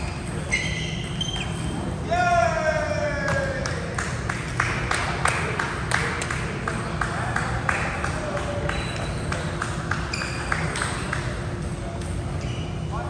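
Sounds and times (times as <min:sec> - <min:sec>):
shoes squeaking: 0:00.0 - 0:01.9, 0:10.0 - 0:10.7, 0:12.1 - 0:12.9.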